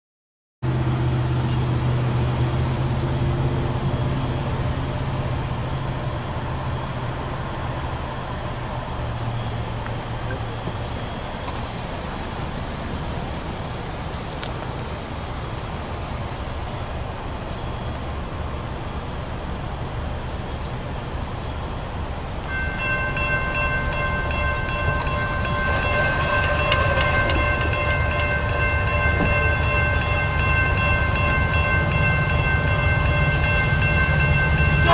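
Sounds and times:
distant locomotive rumble: 0:00.6 - 0:34.9
locomotive horn chord: 0:22.5 - 0:34.9.

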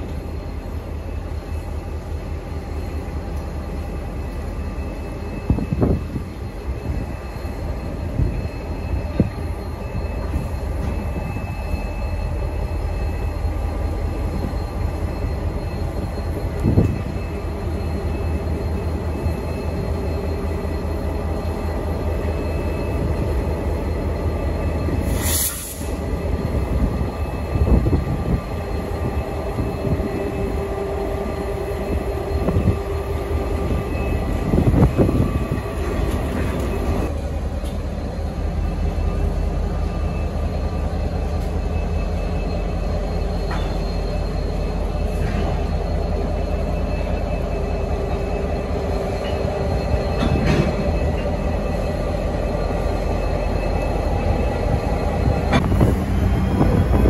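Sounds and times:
diesel locomotives rumbling: 0:00.0 - 0:57.0
train wheels squealing on rails: 0:00.0 - 0:57.0.

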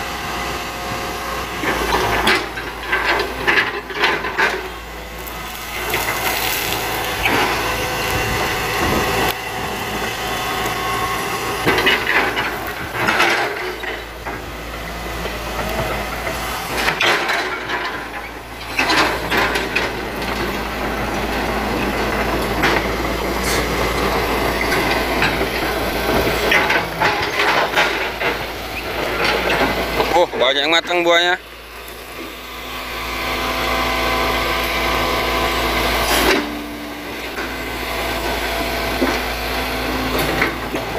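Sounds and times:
excavator diesel engine running: 0:00.0 - 0:40.9
wood and roots cracking: 0:05.2 - 0:09.3.

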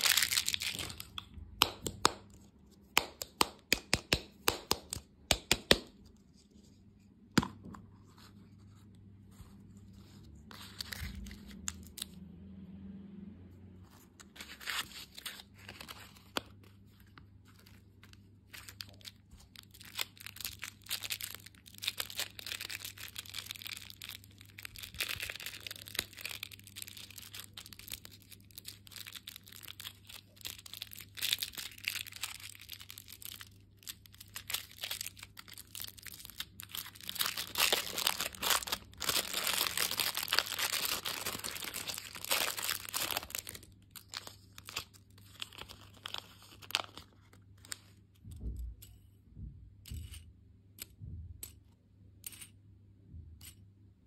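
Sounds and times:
plastic and paper wrappers crinkling: 0:00.0 - 0:01.3, 0:09.8 - 0:12.2, 0:14.2 - 0:48.3.

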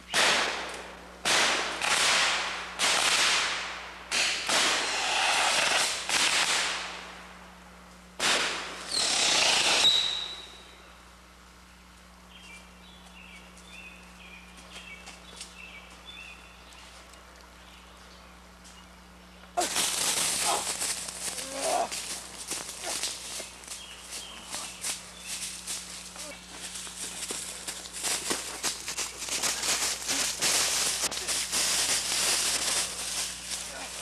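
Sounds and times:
birds chirping: 0:11.6 - 0:19.6, 0:20.4 - 0:31.3.

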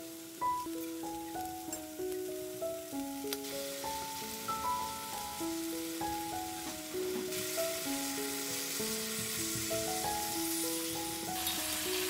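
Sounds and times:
background music with held notes: 0:00.0 - 0:12.0
pork sizzling in a frying pan: 0:00.0 - 0:12.0.

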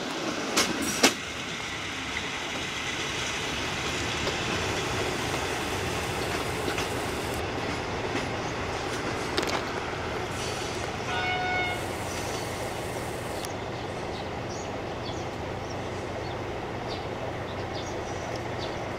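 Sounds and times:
train wheels clicking on rails: 0:00.0 - 0:14.2
train horn blast: 0:11.0 - 0:12.0.

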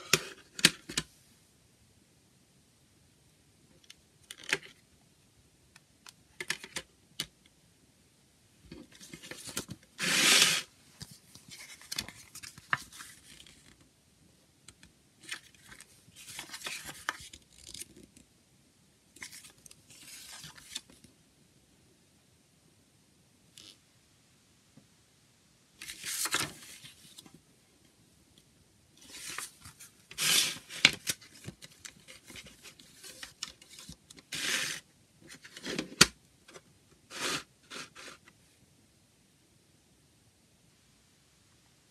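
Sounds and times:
paper pages rustling: 0:08.9 - 0:13.8, 0:15.2 - 0:17.9, 0:19.2 - 0:21.0, 0:25.8 - 0:27.3, 0:29.0 - 0:36.1
paper booklet scraping out: 0:09.2 - 0:10.7, 0:29.1 - 0:31.5, 0:34.3 - 0:36.0, 0:37.1 - 0:38.2.

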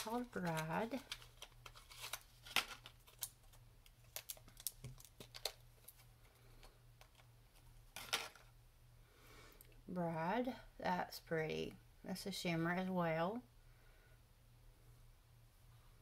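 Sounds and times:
clicks and taps of packaging: 0:00.0 - 0:06.0
low steady hum: 0:00.0 - 0:16.0.

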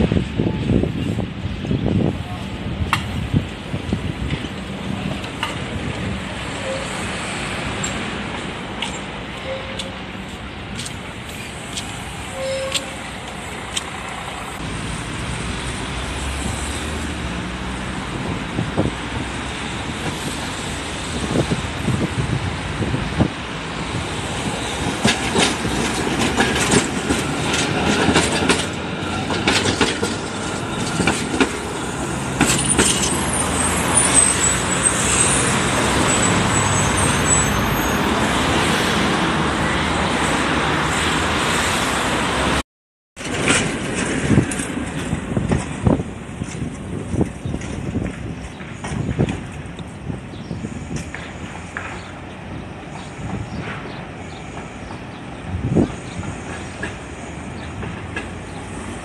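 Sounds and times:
road traffic: 0:00.0 - 0:42.6, 0:43.2 - 0:59.0
tram clattering over rail joints: 0:00.0 - 0:42.6, 0:43.2 - 0:59.0
faint high tram squeal: 0:06.5 - 0:07.2, 0:08.9 - 0:10.1, 0:12.2 - 0:13.2, 0:30.2 - 0:38.4, 0:52.9 - 0:57.8.

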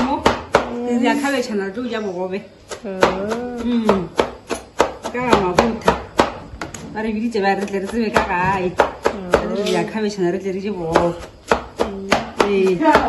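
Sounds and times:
knife chopping cabbage on board: 0:00.0 - 0:00.8, 0:02.6 - 0:06.4, 0:07.4 - 0:09.9, 0:10.6 - 0:13.0.

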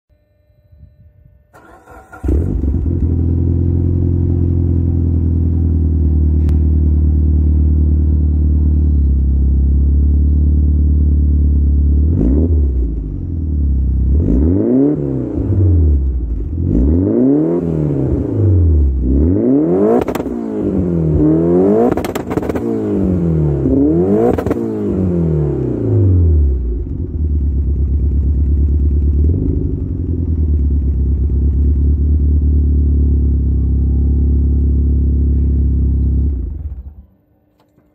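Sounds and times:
car engine starting and idling: 0:01.5 - 0:37.8
engine revving: 0:01.6 - 0:05.0, 0:12.0 - 0:13.4, 0:14.0 - 0:27.9
exhaust afterfire pops: 0:20.0 - 0:20.4, 0:21.8 - 0:22.7, 0:24.3 - 0:24.6.

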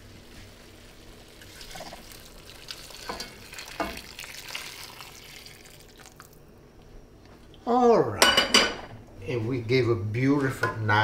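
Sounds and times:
liquid pouring and splashing: 0:00.1 - 0:06.4.

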